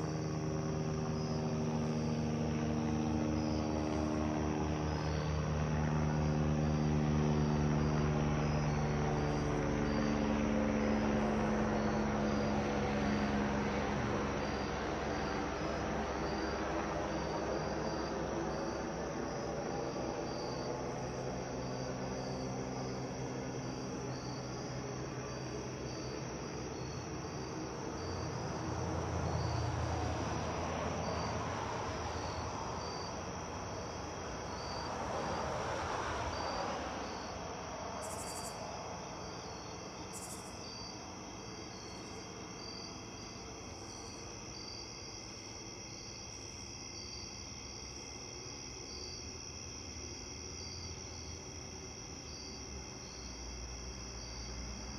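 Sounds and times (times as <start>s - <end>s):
helicopter flying past: 0.0s - 37.9s
crickets chirping: 0.0s - 54.9s.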